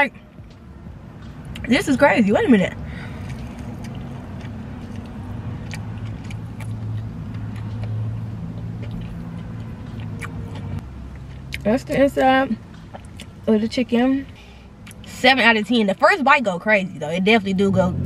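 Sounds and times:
car engine idling: 0.0 - 18.0
person chewing crunchy food: 3.0 - 11.6.

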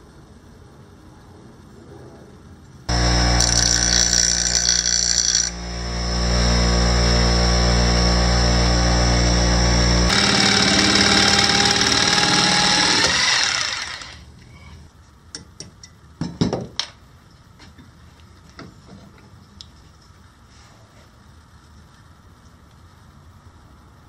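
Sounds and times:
bench grinder winding down: 2.9 - 14.2.

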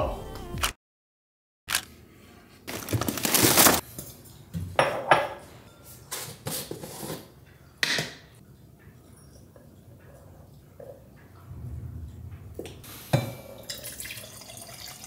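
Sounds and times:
dishes and cutlery clattering: 3.8 - 11.4.

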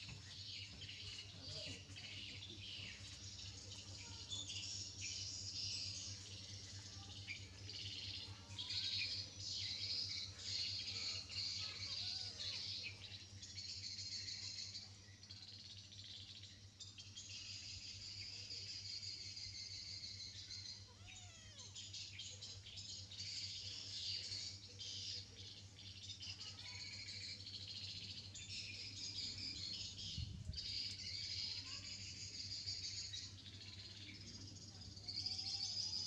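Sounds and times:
birds chirping: 0.0 - 36.0
small animal squeaks: 20.7 - 21.8.

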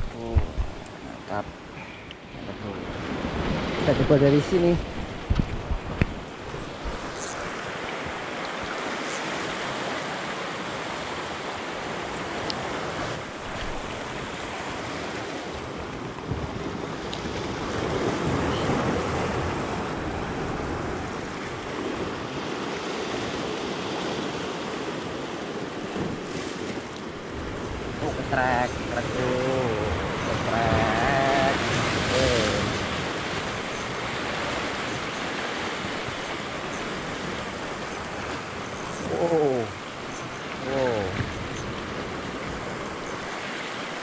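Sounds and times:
waves breaking on rocks: 0.0 - 44.0.

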